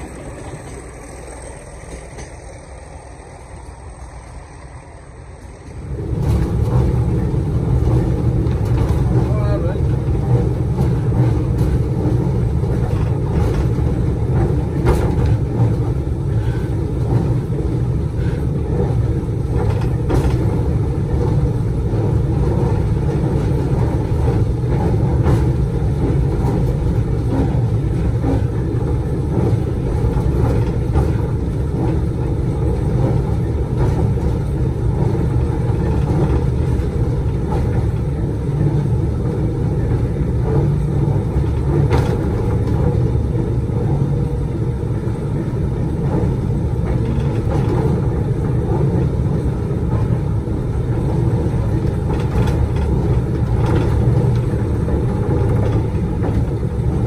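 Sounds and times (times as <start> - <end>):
locomotive engine rumble: 0.0 - 57.0
wheels clicking over rails: 0.0 - 57.0.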